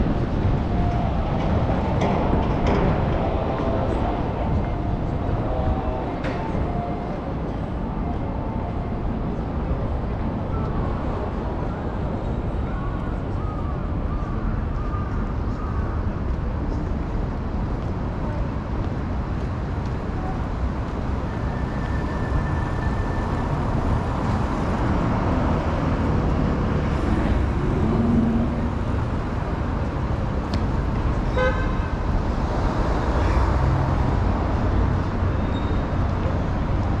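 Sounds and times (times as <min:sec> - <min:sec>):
road traffic: 0:00.0 - 0:37.0.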